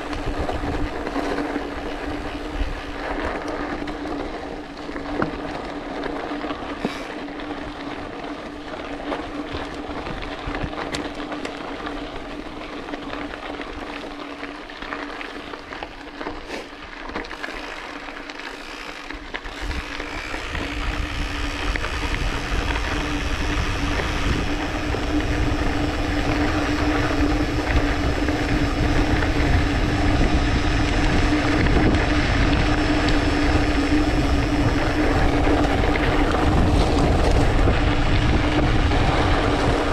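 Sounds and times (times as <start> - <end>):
wind buffeting microphone: 0.0 - 4.4, 19.5 - 39.9
tyres crunching on gravel: 0.0 - 39.9
steady hum: 17.4 - 39.9.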